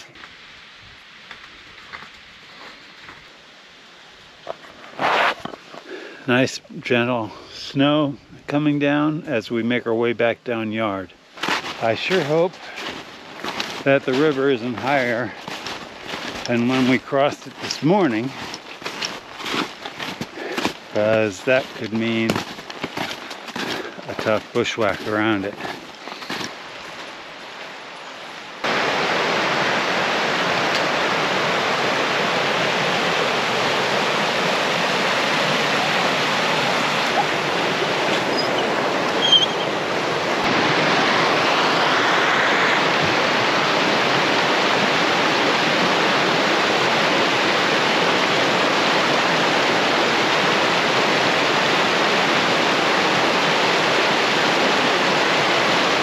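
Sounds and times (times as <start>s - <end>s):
mountain brook rushing: 0.0s - 56.0s.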